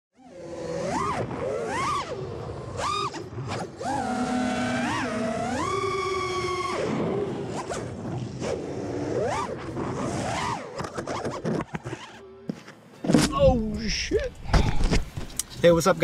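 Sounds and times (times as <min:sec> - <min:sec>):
drone motors whining: 0:00.2 - 0:12.5.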